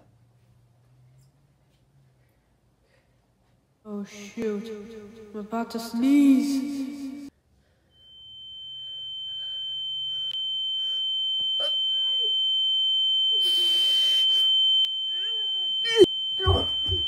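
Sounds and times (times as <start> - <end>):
high-pitched ringing tone: 7.9 - 17.0
boy's strained squeaks: 15.1 - 17.0.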